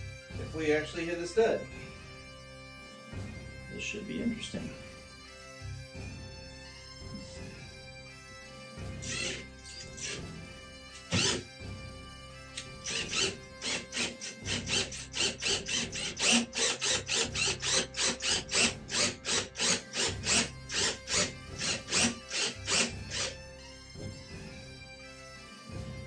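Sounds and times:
bagpipe music: 0.0 - 26.0
cordless drill clicking: 9.0 - 10.2, 10.9 - 11.5, 12.6 - 23.4.

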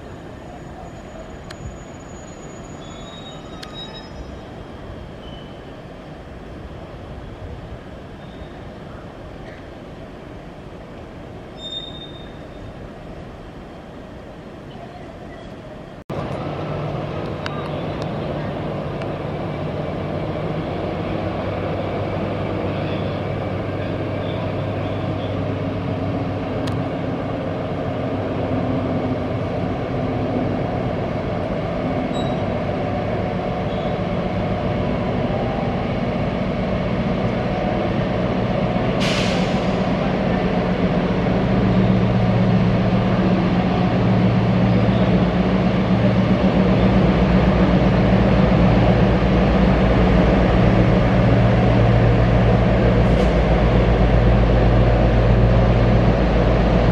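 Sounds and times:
diesel locomotive engine drone: 0.0 - 56.9
short air hiss: 39.0 - 39.8.

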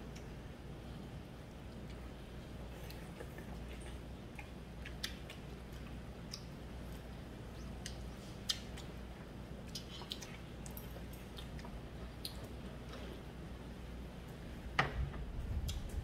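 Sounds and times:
steady low hum: 0.0 - 16.0
chewing: 1.5 - 13.3.

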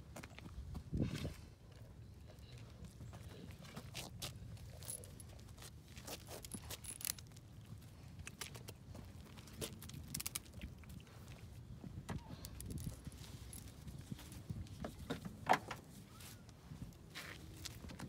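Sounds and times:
dog claws on concrete: 4.0 - 11.4.

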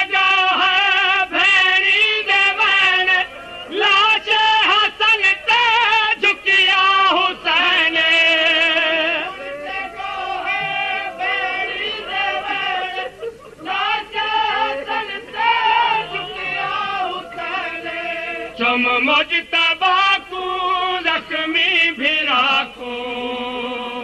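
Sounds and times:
person singing devotional song: 0.0 - 24.0.

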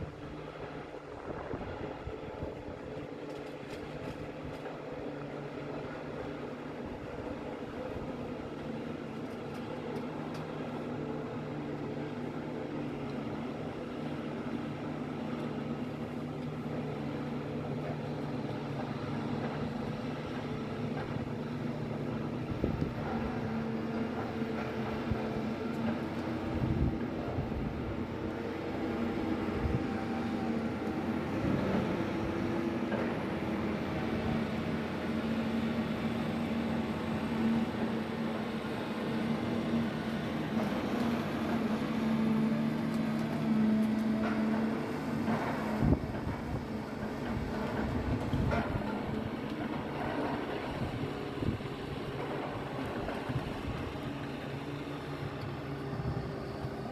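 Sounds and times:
diesel engine droning: 0.0 - 56.9.

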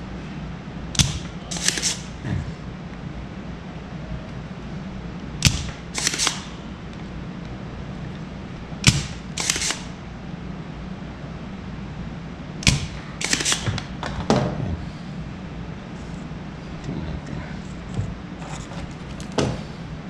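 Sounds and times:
desoldering pump snapping: 0.9 - 2.2, 5.4 - 6.5, 8.8 - 10.0, 12.6 - 14.3.

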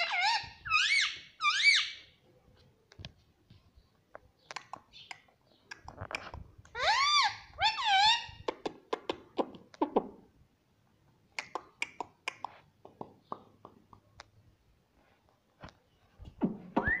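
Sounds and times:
parrot calls: 0.0 - 2.1, 6.7 - 8.5.

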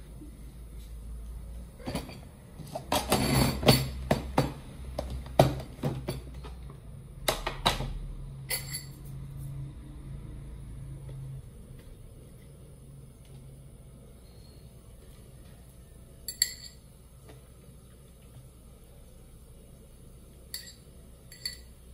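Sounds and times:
low steady hum: 0.0 - 21.9
kitchenware knocks and clinks: 1.8 - 6.5, 20.6 - 21.7.

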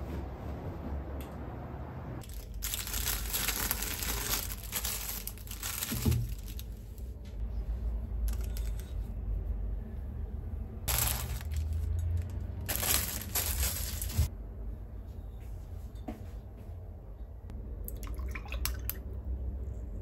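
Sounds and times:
plastic bag crinkling: 2.2 - 7.0, 10.9 - 14.3.

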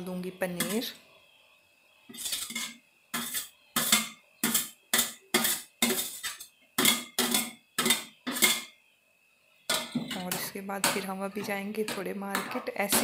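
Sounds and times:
metal spoon scraping a steel plate: 2.1 - 8.7.

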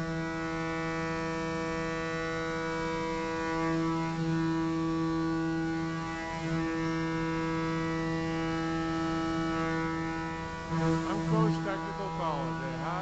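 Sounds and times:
steady machine hum: 6.5 - 13.0.

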